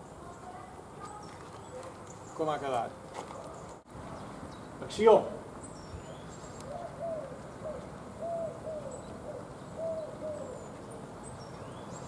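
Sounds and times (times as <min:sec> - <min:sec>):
dove cooing: 0:06.6 - 0:11.1.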